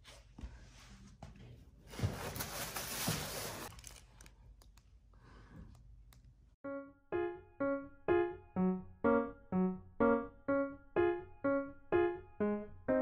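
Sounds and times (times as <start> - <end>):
plastic wrap crinkling: 2.3 - 4.4
piano background music: 6.6 - 13.0.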